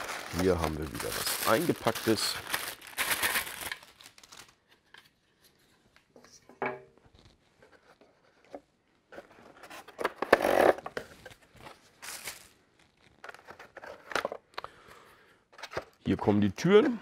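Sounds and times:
paper wrapping rustling: 0.0 - 4.9, 11.0 - 14.1.

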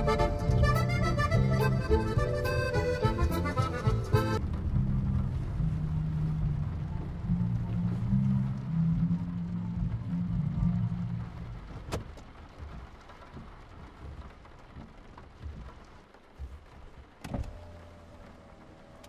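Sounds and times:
rain on a car roof: 0.0 - 19.0.

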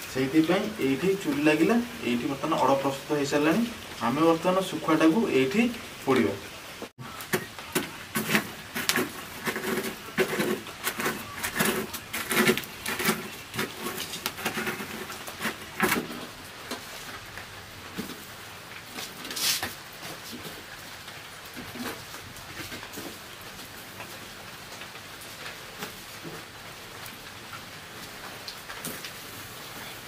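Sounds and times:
wood fire crackling: 0.0 - 30.0
sharp crack of fire: 7.0 - 30.0
log pushed into embers: 7.2 - 16.4.

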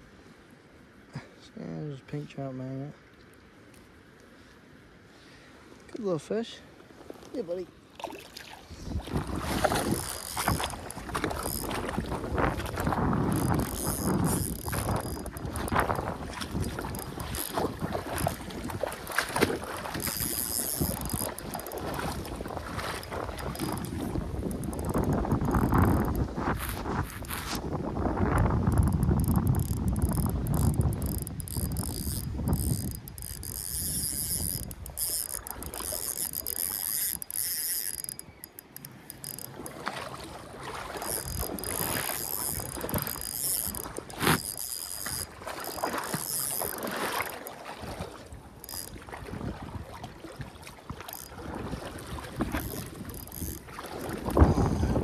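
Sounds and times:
wind rumble on microphone: 8.6 - 37.9, 39.6 - 46.9, 47.6 - 55.0
reel gears ticking with whine: 9.6 - 26.2, 28.4 - 39.8, 41.0 - 47.4, 48.6 - 49.0, 51.1 - 51.4, 52.4 - 55.0.

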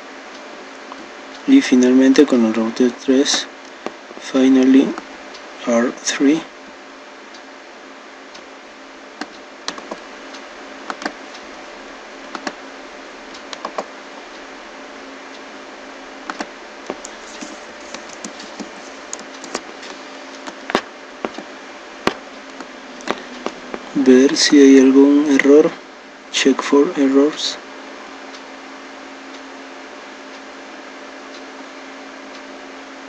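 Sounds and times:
steady background hiss: 0.0 - 33.0
computer mouse and keyboard clicks: 9.2 - 10.0, 10.9 - 11.2, 12.3 - 12.6, 13.5 - 13.9, 16.3 - 24.4.

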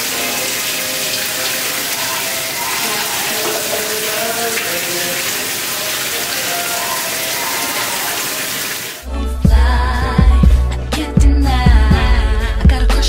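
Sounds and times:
shower spray hissing: 0.0 - 9.0.

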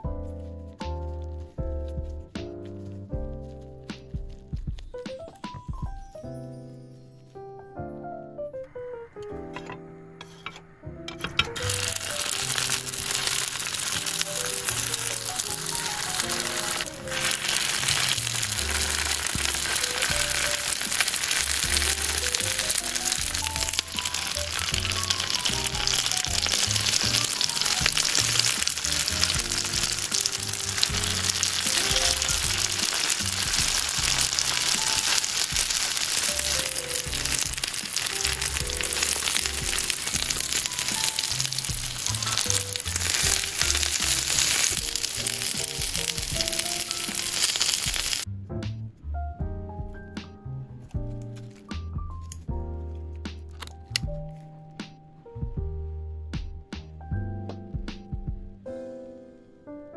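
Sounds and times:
background music: 0.0 - 59.9
food sizzling in oil: 11.2 - 48.3.

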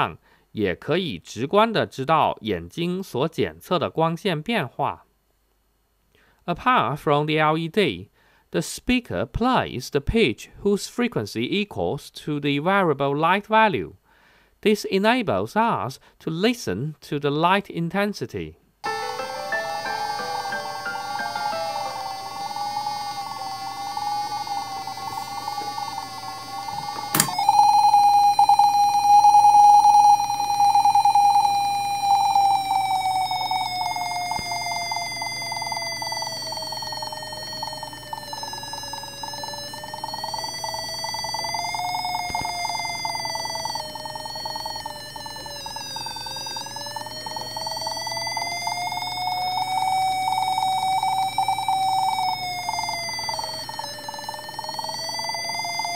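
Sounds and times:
click: 27.0 - 27.5, 42.3 - 42.5.

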